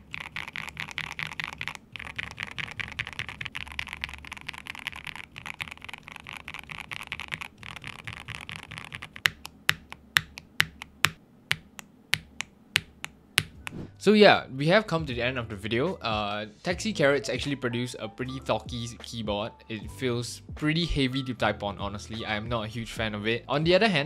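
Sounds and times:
fast typing on mechanical keyboard: 0.0s - 10.8s.

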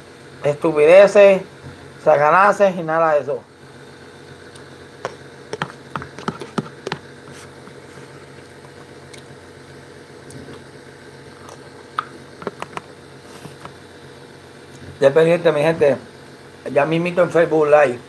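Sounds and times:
low room hum: 0.0s - 18.0s
man chewing: 4.5s - 9.4s, 11.3s - 12.8s.

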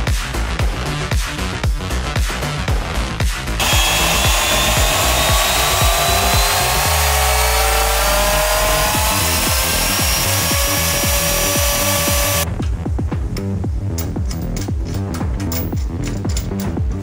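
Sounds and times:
belt sander whirring: 3.6s - 12.5s.

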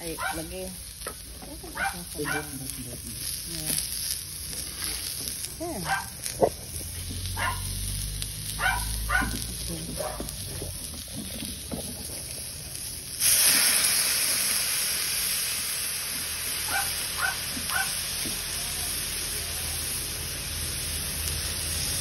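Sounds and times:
chicken sizzling in hot oil: 0.0s - 22.0s
dog yipping: 5.8s - 6.2s, 7.4s - 7.7s, 8.6s - 9.4s, 16.7s - 18.0s.

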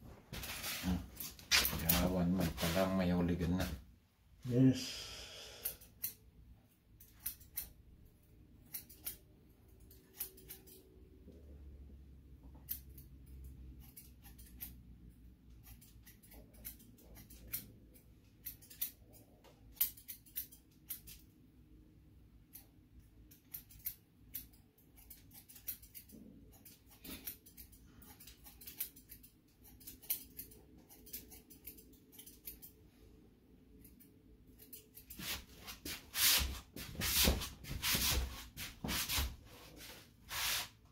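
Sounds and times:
scissors snipping hair: 5.6s - 6.2s, 7.0s - 7.8s, 8.6s - 10.9s, 12.4s - 21.4s, 22.4s - 32.8s, 33.7s - 35.8s.

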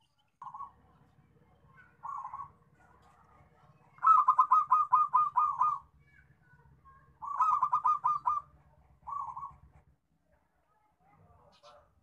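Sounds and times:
dove cooing in staccato notes: 1.7s - 5.9s, 7.2s - 9.8s.

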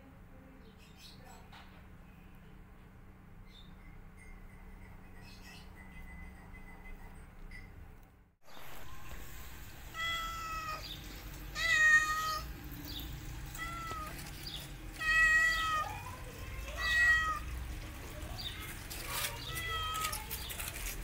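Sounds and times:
cat meowing: 9.8s - 12.6s, 13.5s - 17.6s, 19.0s - 20.6s.

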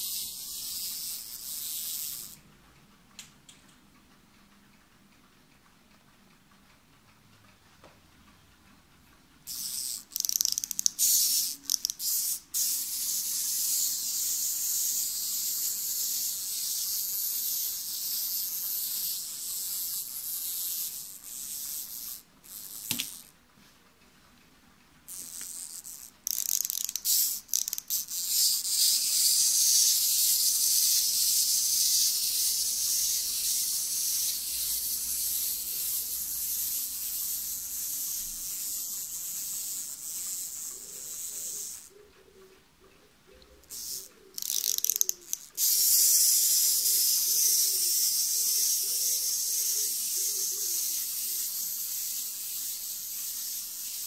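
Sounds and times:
clockwork motor whirring: 25.2s - 41.9s, 43.7s - 54.0s.

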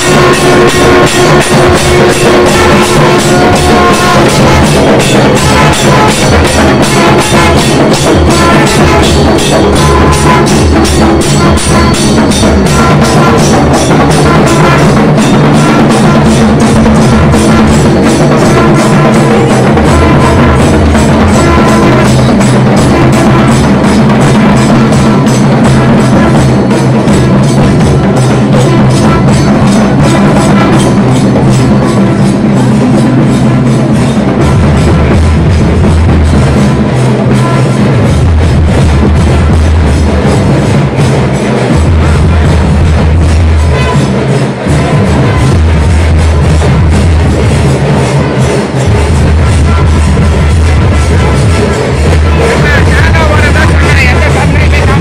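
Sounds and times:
brass horn long notes: 0.0s - 24.0s
barrel drums beating: 0.0s - 55.0s.

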